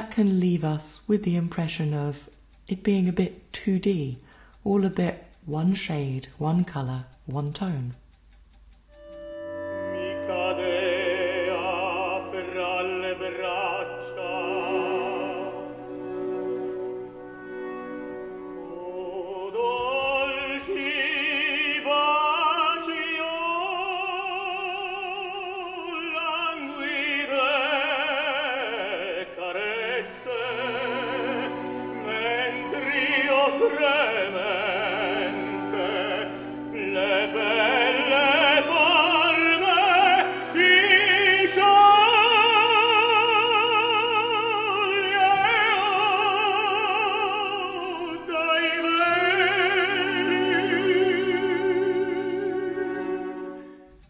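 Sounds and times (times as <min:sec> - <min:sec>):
orchestral accompaniment: 0:08.9 - 0:54.0
operatic tenor singing: 0:09.0 - 0:53.7.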